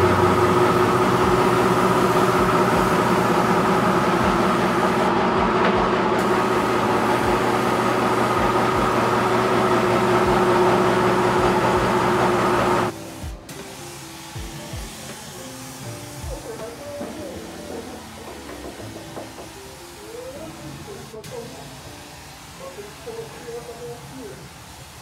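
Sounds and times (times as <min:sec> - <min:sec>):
steady mechanical drone: 0:00.0 - 0:19.0.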